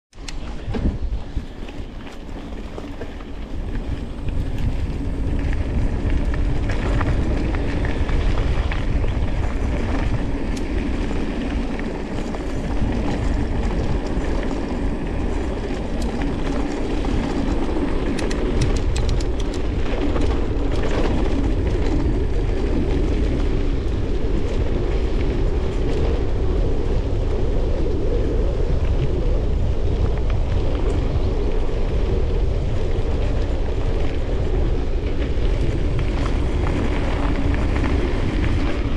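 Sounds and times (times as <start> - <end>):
bike rattling: 0.2 - 38.9
bike tyres rumbling over dirt: 0.2 - 38.9
sharp clicks and knocks: 18.1 - 20.3.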